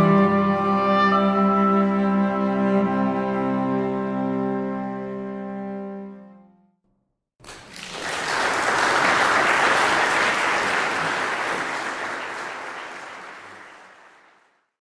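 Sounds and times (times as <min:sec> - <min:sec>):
audience applauding: 0:07.4 - 0:14.7.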